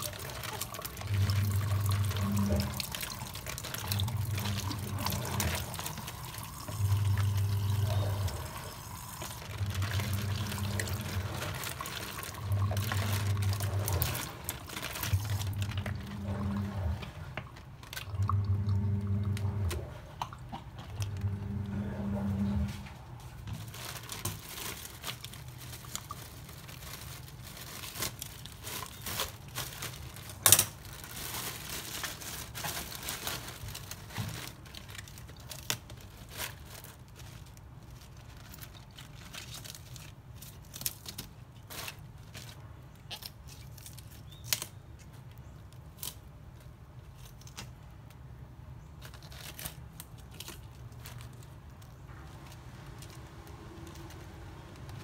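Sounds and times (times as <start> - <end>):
lettuce leaves tearing: 0.0 - 19.9, 20.9 - 48.3, 49.0 - 55.0
steady low hum: 0.7 - 23.6.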